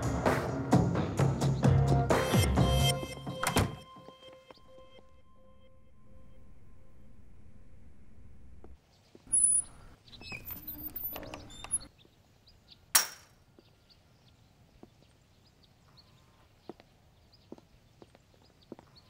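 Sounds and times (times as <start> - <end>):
low steady hum: 4.6 - 8.8.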